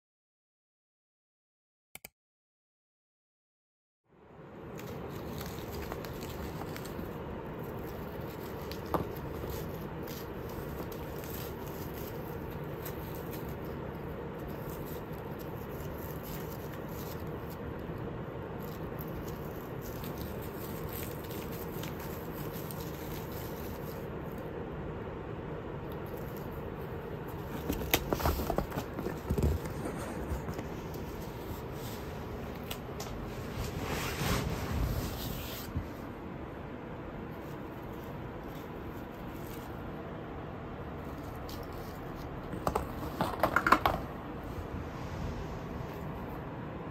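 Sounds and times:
steady background noise: 4.1s - 46.9s
cat scuffling with toy: 4.8s - 17.8s, 18.6s - 24.1s, 26.1s - 36.1s
cat clawing at a toy: 27.2s - 31.7s.

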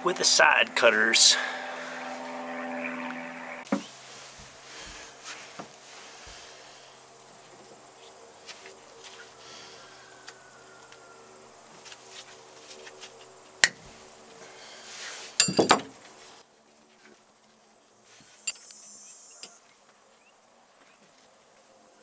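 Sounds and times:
metal tools clinking: 15.4s - 15.8s.

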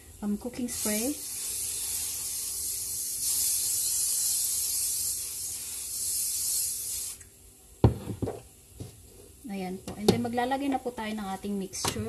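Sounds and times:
aerosol spray hissing: 0.0s - 7.3s.

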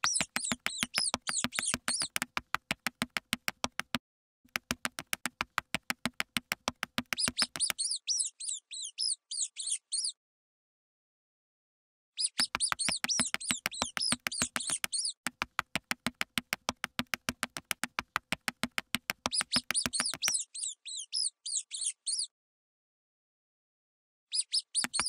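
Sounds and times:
mouse squeaking: 0.0s - 2.3s, 7.1s - 10.2s, 12.2s - 15.2s, 19.2s - 22.3s, 24.3s - 25.0s
fast sharp clicks: 0.0s - 7.8s, 12.4s - 20.4s.

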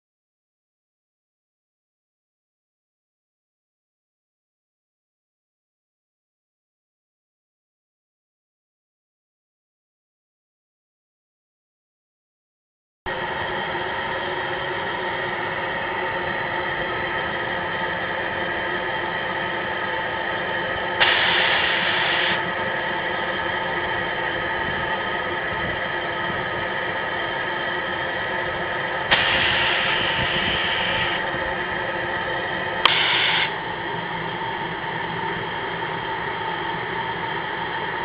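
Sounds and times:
gushes of steam: 21.0s - 22.4s, 29.1s - 31.2s, 32.9s - 33.5s
steam locomotives hissing: 21.0s - 22.5s, 29.1s - 31.2s, 32.8s - 33.6s
sharp click: 32.8s - 33.5s.

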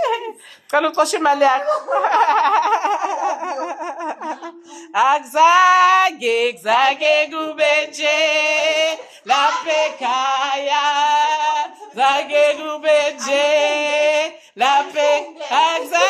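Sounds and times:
woman singing unaccompanied: 4.6s - 16.0s.

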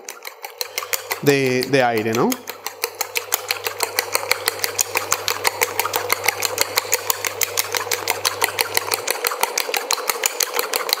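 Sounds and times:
whisk clicking against metal bowl: 0.0s - 11.0s
low steady hum: 0.7s - 9.1s.

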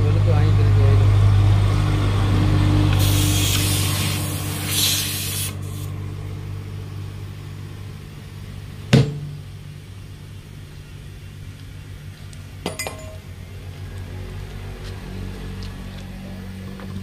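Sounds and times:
air hose humming: 2.9s - 6.0s
sharp knock: 8.9s - 9.4s.

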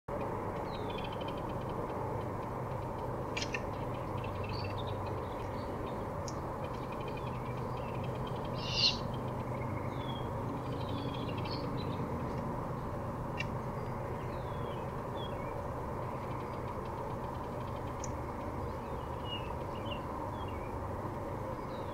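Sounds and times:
songbird chirps: 0.1s - 21.9s
steady low hum: 0.1s - 21.9s
owl raspy call: 8.5s - 9.1s.

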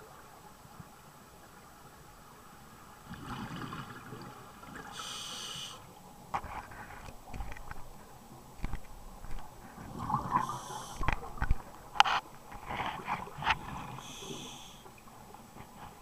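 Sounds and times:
regulator inhalation hiss: 5.0s - 5.9s, 10.4s - 11.1s, 14.0s - 14.9s.

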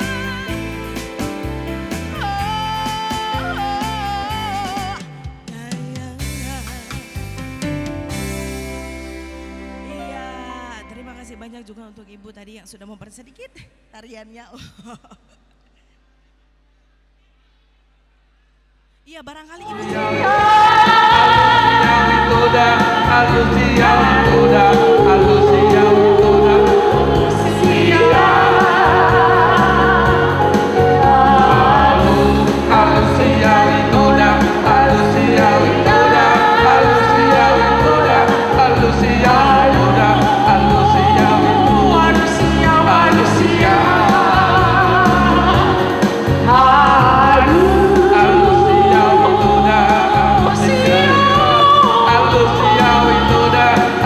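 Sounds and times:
instrumental backing music: 0.0s - 12.3s, 19.7s - 54.0s
man and woman singing duet: 19.6s - 54.0s.

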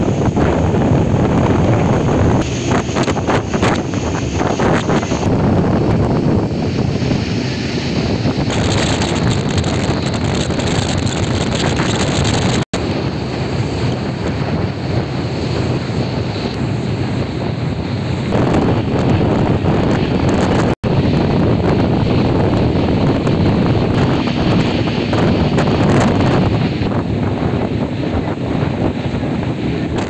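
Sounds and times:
boat moving on water: 0.0s - 30.0s
wind buffeting microphone: 0.0s - 30.0s.

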